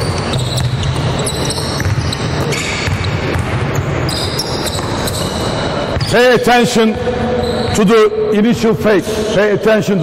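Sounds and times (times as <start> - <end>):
basketballs bouncing on wood: 0.0 - 6.2
sneakers squeaking: 0.0 - 8.1.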